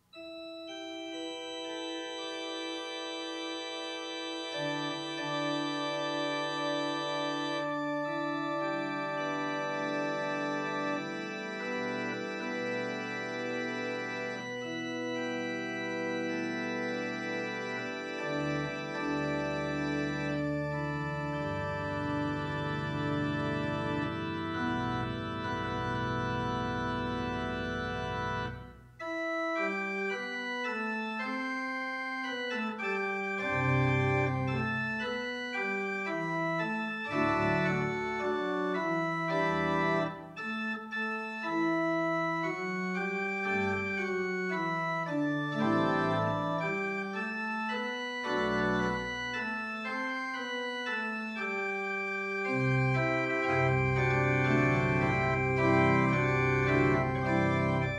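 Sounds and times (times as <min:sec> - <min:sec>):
church organ playing: 0:00.0 - 0:57.9.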